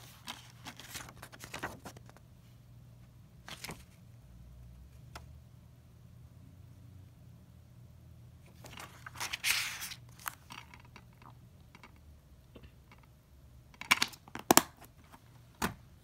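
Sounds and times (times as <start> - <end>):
paper insert rustling: 0.0 - 2.3, 3.4 - 4.0, 8.5 - 10.8
plastic case clicks and snaps: 13.8 - 14.8.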